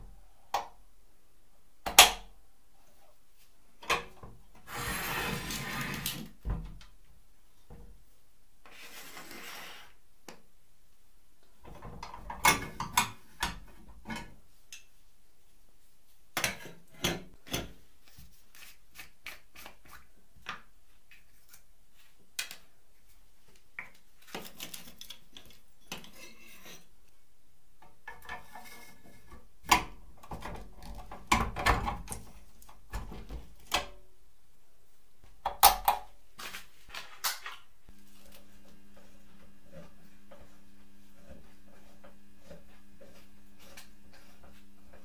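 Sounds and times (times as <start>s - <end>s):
low steady hum: 37.8s - 45.0s.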